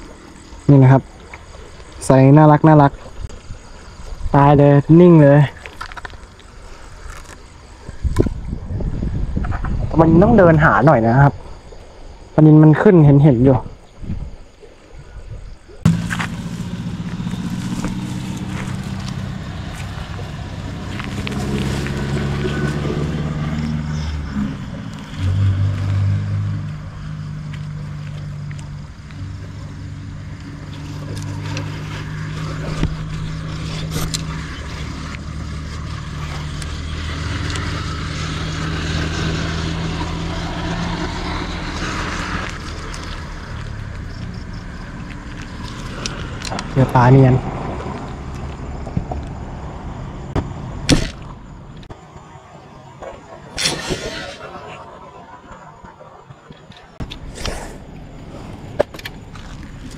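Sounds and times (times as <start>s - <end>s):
engine running: 15.8s - 51.9s.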